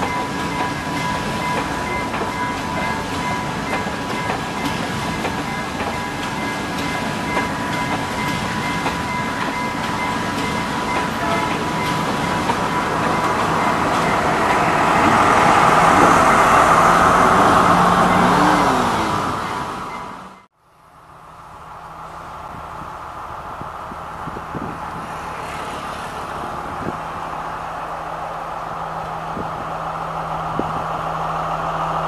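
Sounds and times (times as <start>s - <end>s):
train wheels clattering: 0.0s - 16.6s.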